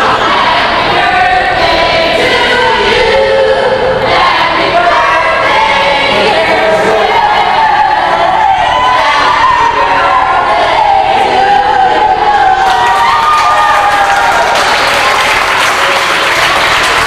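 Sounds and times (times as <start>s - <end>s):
crowd shouting and cheering: 0.0s - 17.0s.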